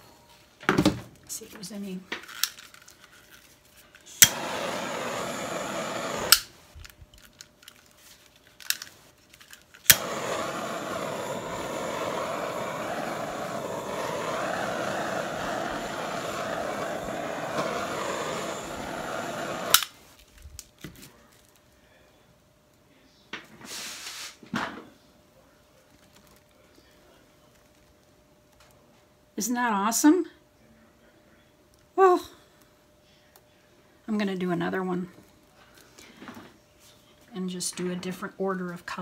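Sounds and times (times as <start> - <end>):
hairdryer blowing: 4.2 - 6.5, 9.9 - 19.9.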